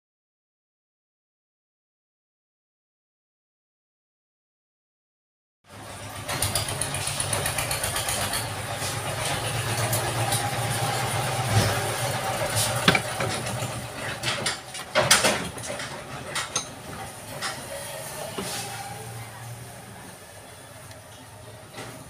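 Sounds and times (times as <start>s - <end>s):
steady mechanical hum: 5.7s - 22.0s.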